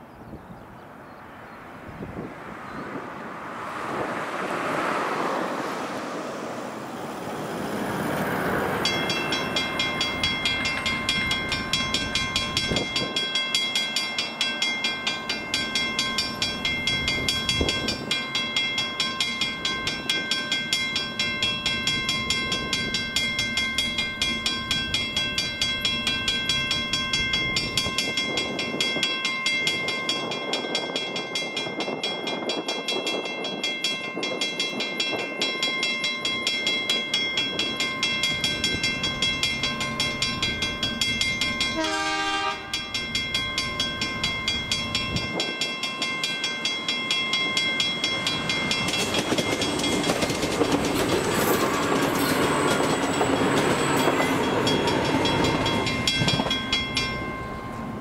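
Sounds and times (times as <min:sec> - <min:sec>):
car passing: 0:01.2 - 0:10.6
level crossing bell ringing: 0:08.8 - 0:50.6, 0:51.6 - 0:58.0.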